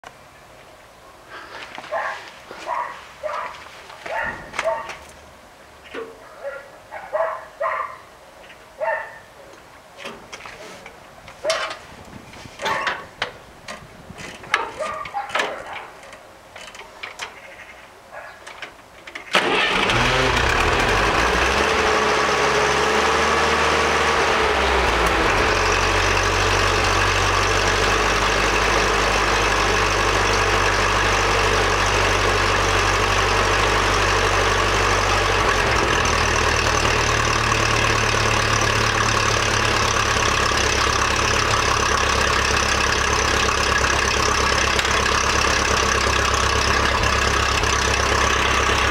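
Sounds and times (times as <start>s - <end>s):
tractor engine starting and idling: 19.0s - 48.9s.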